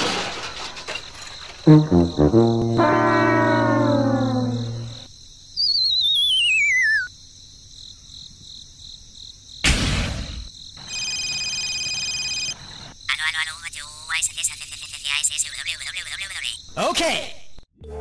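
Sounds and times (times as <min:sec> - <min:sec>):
short burst of noise: 0:01.7 - 0:05.1
steady high electronic tone: 0:01.7 - 0:05.1
wavering whistle sliding down: 0:01.9 - 0:05.1.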